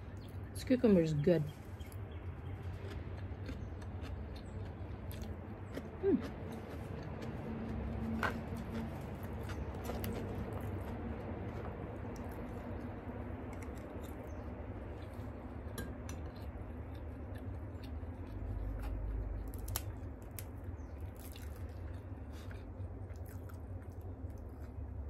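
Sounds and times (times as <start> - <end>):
steady low rumble: 0.0 - 25.0
chewing and wet mouth sounds: 1.5 - 25.0.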